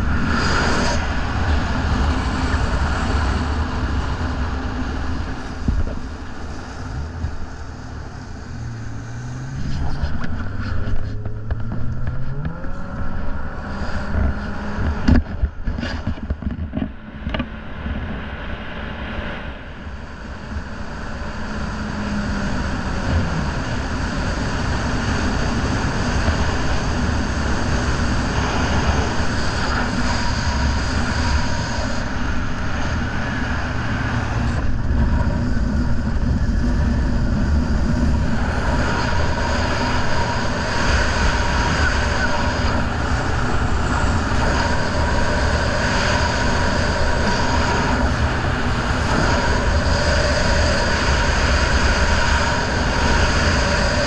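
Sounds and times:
wind and water rush: 0.0s - 54.0s
outboard motor running hard: 19.8s - 54.0s.

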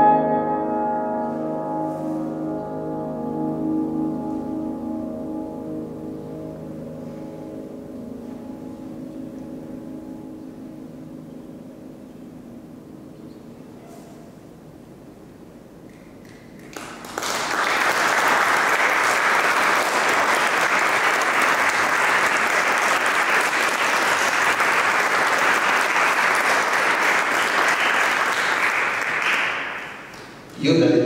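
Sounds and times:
audience applauding: 15.9s - 30.5s.

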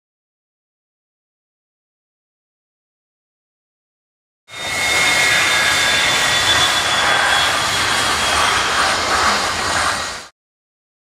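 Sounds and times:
high engine whine: 4.5s - 10.3s
jet engines running: 4.5s - 10.3s.

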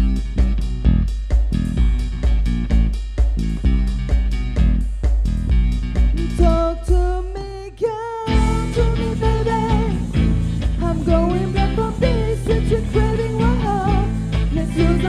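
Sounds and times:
person singing long notes: 6.2s - 10.2s, 10.8s - 15.0s
live pop-rock band playing: 8.3s - 15.0s.

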